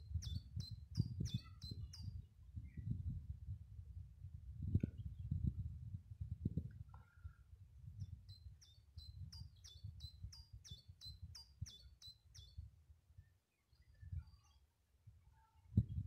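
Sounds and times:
faint bird chirps: 0.0 - 3.0, 8.0 - 14.7
wind rumble on microphone: 0.0 - 14.4, 15.0 - 16.0
songbird singing high notes: 0.1 - 2.2, 8.3 - 12.6.

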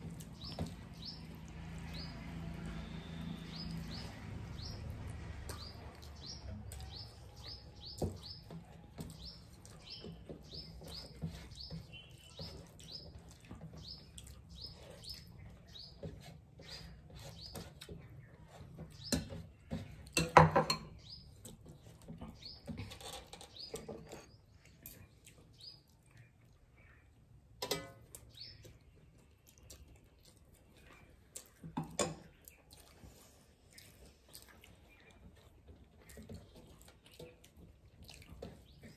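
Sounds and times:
hands eating from metal plates: 0.0 - 38.9
small bird chirping: 5.5 - 19.8, 22.2 - 27.2.

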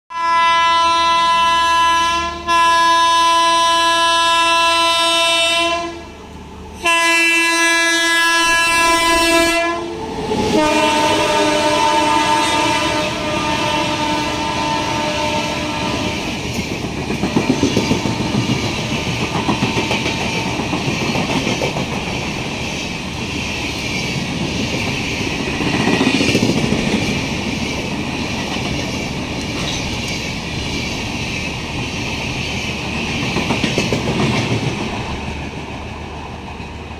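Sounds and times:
locomotive horn blasts: 0.1 - 6.1, 6.8 - 16.4, 17.4 - 18.6
train coaches rumbling past: 0.2 - 36.9
wheel clatter on rail joints: 16.3 - 35.7.

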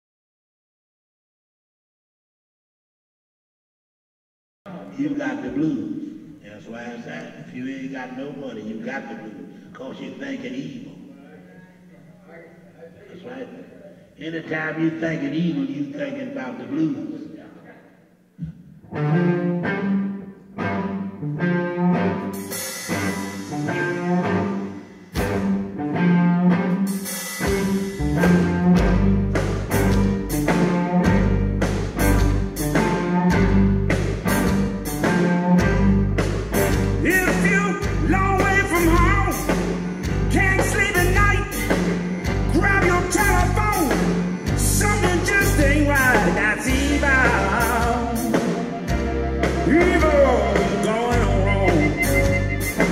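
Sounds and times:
electric guitar riff: 18.8 - 44.9, 46.0 - 52.9
wavering lead guitar lines: 18.8 - 52.9
live blues band playing: 18.9 - 52.9.

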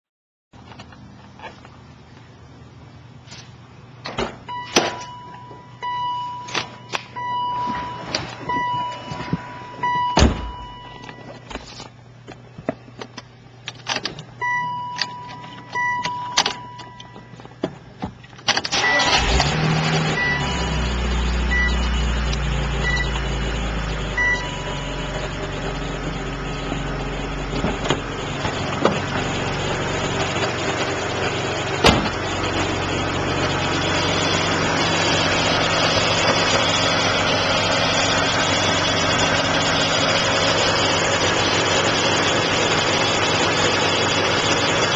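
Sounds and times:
dashboard beeps: 4.5 - 11.4, 14.4 - 17.4, 22.8 - 23.2, 24.1 - 25.1
car engine starting and idling: 12.8 - 44.9.

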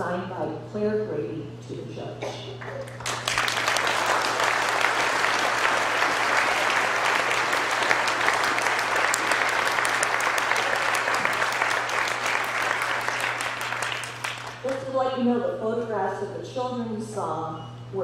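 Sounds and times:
crowd applauding: 2.9 - 14.9.

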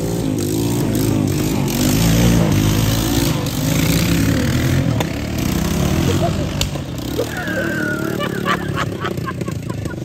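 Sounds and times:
car engine running: 0.0 - 10.0.

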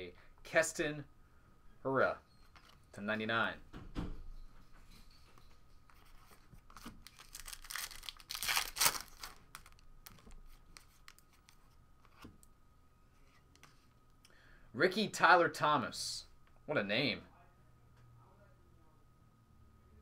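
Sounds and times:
wrapper tearing and crinkling: 6.7 - 10.3.

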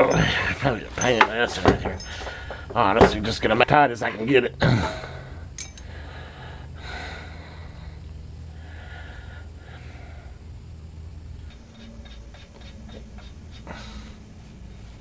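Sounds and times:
steady low hum: 0.0 - 15.0
man breathing: 2.0 - 2.8, 4.8 - 10.6, 11.4 - 15.0.

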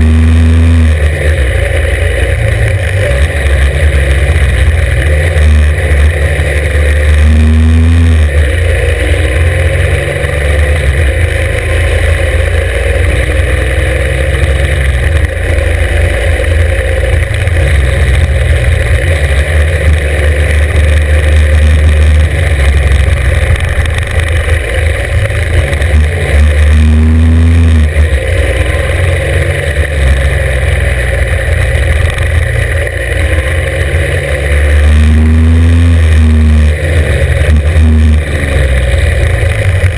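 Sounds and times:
motorcycle engine revving under load: 0.0 - 39.9.

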